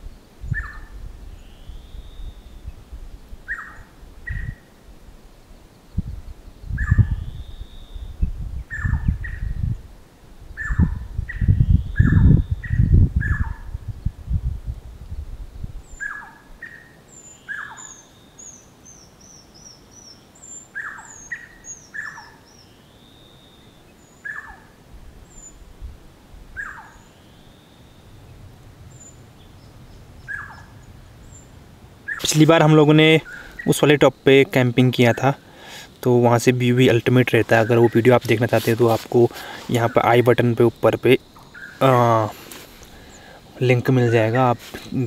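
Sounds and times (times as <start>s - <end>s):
birds calling: 0.0s - 2.8s, 3.4s - 4.8s, 5.8s - 9.7s, 10.5s - 13.7s, 15.8s - 25.7s, 26.5s - 45.0s
wind rumbling on microphone: 0.0s - 16.7s, 24.4s - 27.1s, 27.8s - 45.0s
high bird chirps: 15.9s - 24.7s, 26.6s - 34.4s.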